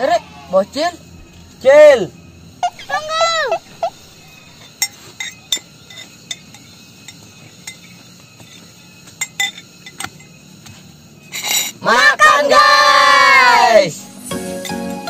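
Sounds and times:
spoons clinking on plates: 0:04.6 - 0:10.3, 0:11.3 - 0:11.8.

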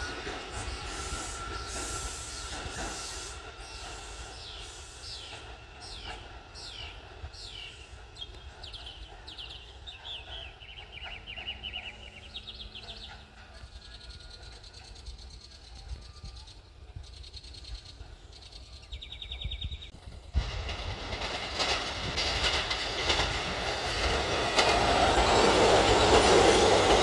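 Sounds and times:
train noise: 0:00.0 - 0:27.0
songbird singing: 0:00.1 - 0:20.0.

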